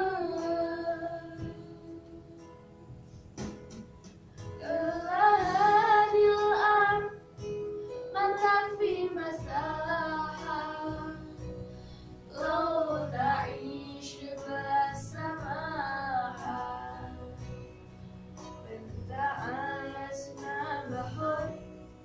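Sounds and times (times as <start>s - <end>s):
electronic keyboard accompaniment: 0.0s - 22.0s
children singing: 8.2s - 11.4s, 12.3s - 17.4s.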